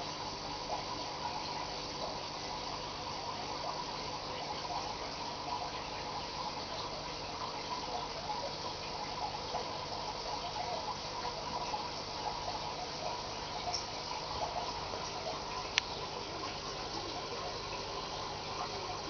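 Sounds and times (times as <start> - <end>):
aquarium water trickling and bubbling: 0.0 - 19.0.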